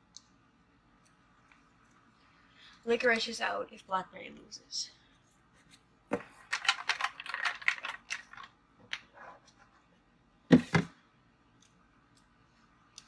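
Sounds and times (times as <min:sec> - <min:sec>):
small clicks and rattles: 0:06.4 - 0:09.1.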